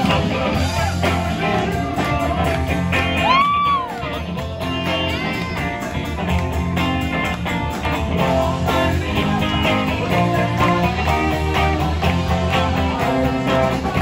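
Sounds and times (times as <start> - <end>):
electric guitar: 0.0 - 14.0
upbeat band music: 0.0 - 14.0.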